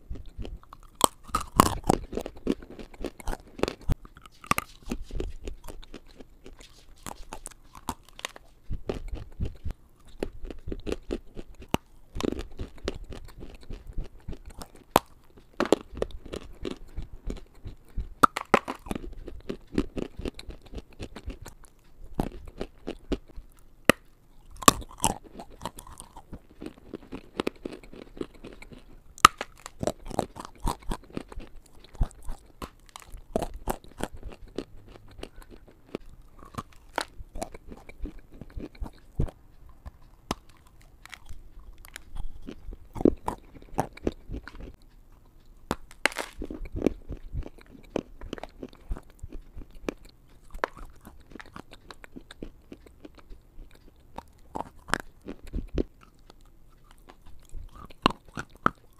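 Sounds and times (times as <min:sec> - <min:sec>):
grinding chews: 0:00.0 - 0:58.9
brittle cracks of biting: 0:00.7 - 0:09.2, 0:18.2 - 0:21.6, 0:23.9 - 0:44.8, 0:45.7 - 0:47.0, 0:47.8 - 0:53.2.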